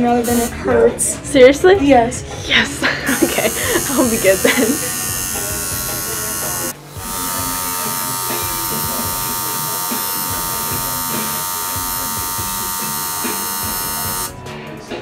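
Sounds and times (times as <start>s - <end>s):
tattoo machine buzzing: 0.1s - 0.5s, 3.1s - 14.4s.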